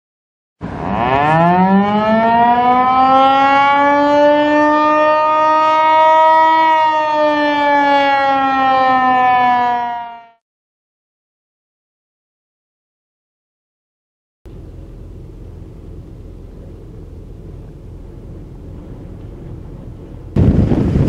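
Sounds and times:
warning siren wailing: 0.6s - 10.4s.

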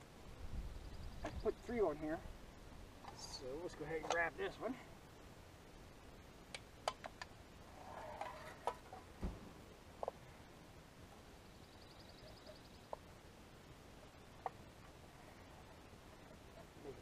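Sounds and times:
dull thump: 9.2s - 9.6s.

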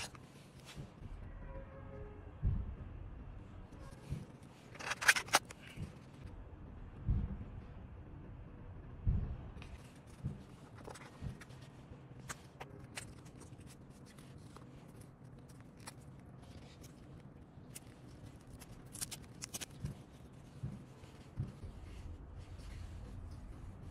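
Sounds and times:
cardboard rustling: 0.0s - 0.8s, 4.0s - 5.8s, 9.6s - 23.9s
crisp clicks of kit parts: 4.7s - 6.0s, 12.2s - 20.0s.

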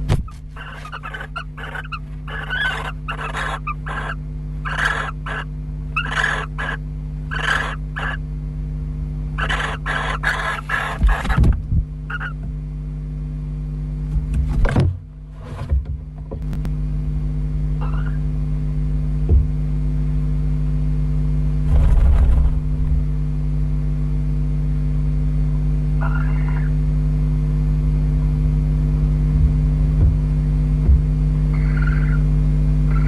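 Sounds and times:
electrical hum: 0.0s - 33.0s
faint owl calls: 0.5s - 8.3s, 9.4s - 11.4s, 12.0s - 12.4s, 17.8s - 18.4s, 26.0s - 26.9s, 31.5s - 33.0s
owls knocking in wooden box: 9.5s - 12.6s, 29.3s - 32.2s.

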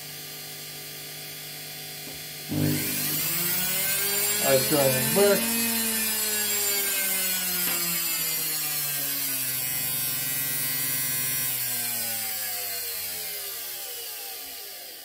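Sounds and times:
motor whine falling in pitch: 2.5s - 8.9s.

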